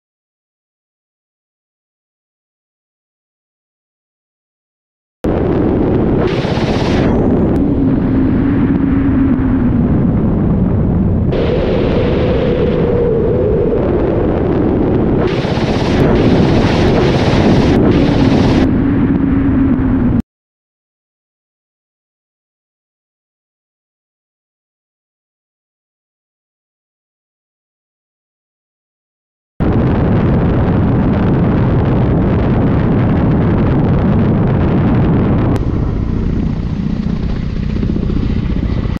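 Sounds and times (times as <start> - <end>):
helicopter engine and rotor noise: 5.3 - 20.2, 35.3 - 39.0.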